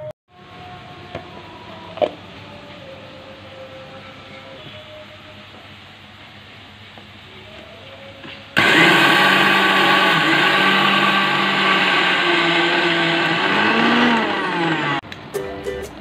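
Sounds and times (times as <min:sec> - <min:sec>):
mixer grinder motor running: 0:08.6 - 0:15.0
mixer grinder switch: 0:08.6 - 0:15.0.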